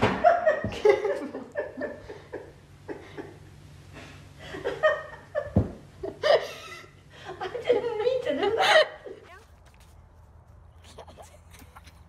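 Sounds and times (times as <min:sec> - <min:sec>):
woman laughing: 0:04.7 - 0:09.4.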